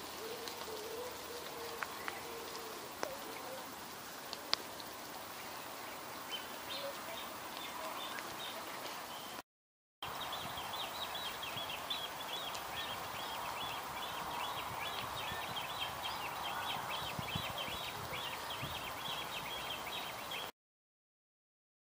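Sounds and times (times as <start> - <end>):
faint background hiss: 0.0 - 9.4, 10.1 - 20.5
bird chirping: 4.7 - 9.4, 10.0 - 20.5.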